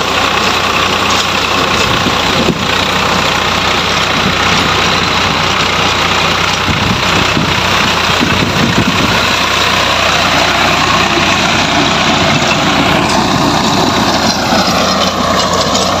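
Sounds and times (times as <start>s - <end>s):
rotary tiller churning soil: 0.0s - 16.0s
tractor diesel engine running: 0.0s - 16.0s.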